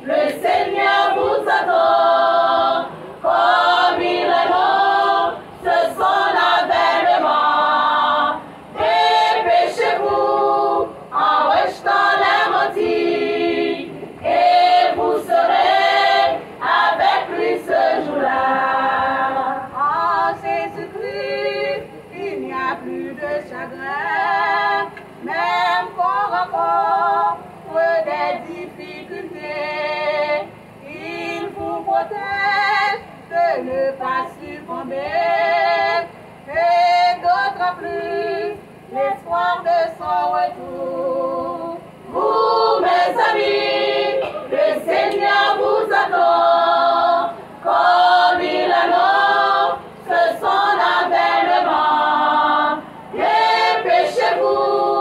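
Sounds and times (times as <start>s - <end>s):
women's choir singing: 0.0s - 55.0s.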